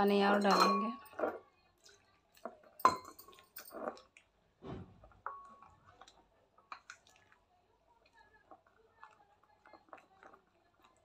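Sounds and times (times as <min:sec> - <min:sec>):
spoon clinking on glass bowl: 0:00.0 - 0:01.4, 0:02.3 - 0:04.1
spoon stirring batter: 0:00.0 - 0:11.0.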